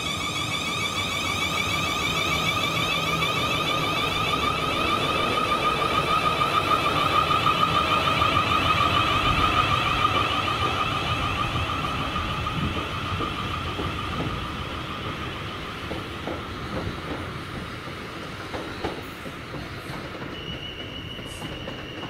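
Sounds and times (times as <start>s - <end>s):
warbling electronic alarm: 0.0s - 14.9s
low rumble of train: 0.0s - 22.0s.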